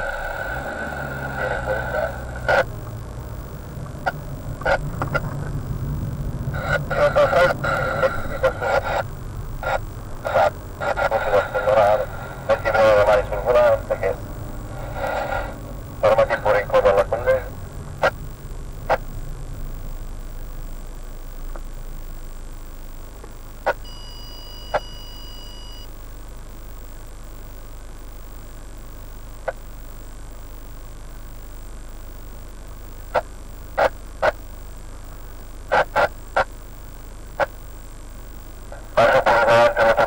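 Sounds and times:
car engine idling: 0.0 - 22.2
road rumble: 0.0 - 24.2
faint high electronic tone: 23.7 - 26.1.

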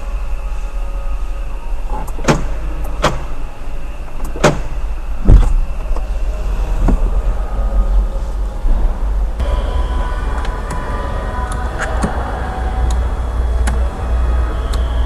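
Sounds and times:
low hum: 0.0 - 15.0
door lock buttons clicking: 4.1 - 4.8.

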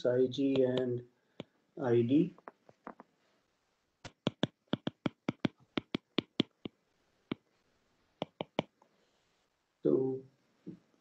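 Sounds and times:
stylus tapping on glass screen: 2.4 - 3.1, 4.0 - 7.4, 8.2 - 8.7.

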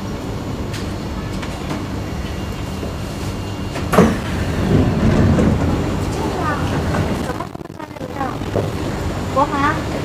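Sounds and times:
train interior low hum: 0.0 - 10.0
sliding doors opening: 3.7 - 7.3.

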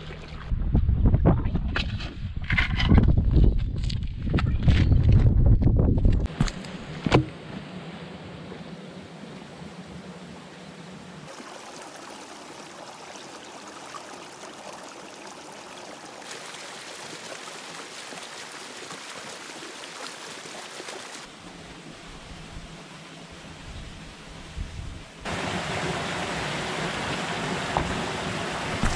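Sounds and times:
creek running among boulders: 9.8 - 21.8, 25.2 - 28.9.

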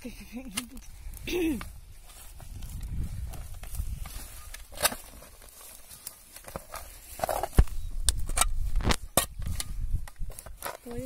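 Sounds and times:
shovel digging into soil: 2.2 - 11.0.

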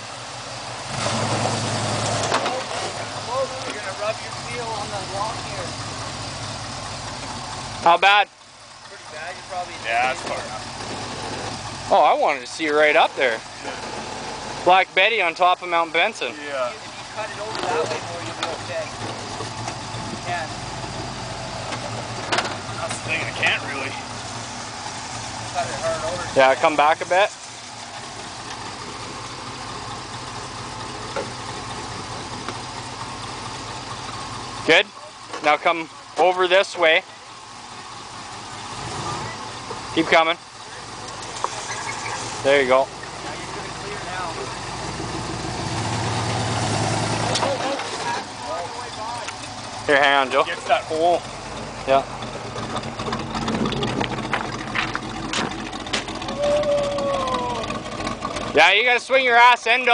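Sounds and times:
truck engine idling: 0.0 - 59.9
drawn-out squeal: 8.7 - 59.9
tyres grinding over loose rock: 47.2 - 58.7
stones crunching and knocking: 53.6 - 56.2.

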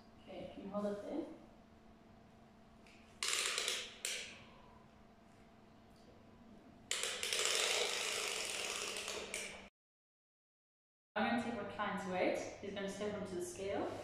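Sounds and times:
tape measure being pulled out: 6.9 - 9.5.

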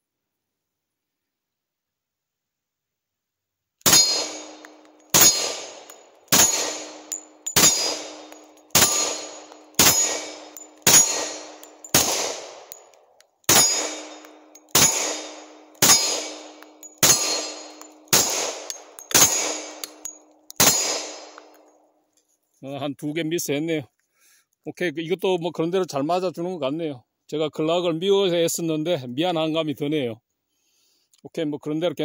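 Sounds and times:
pistol shots: 3.8 - 12.9, 13.5 - 21.6
metal sign target clanging: 3.8 - 21.6.

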